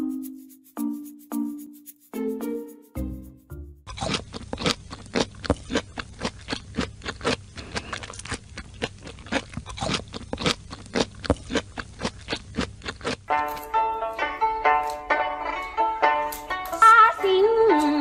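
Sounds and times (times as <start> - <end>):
cat crunching cucumber: 3.9 - 16.8.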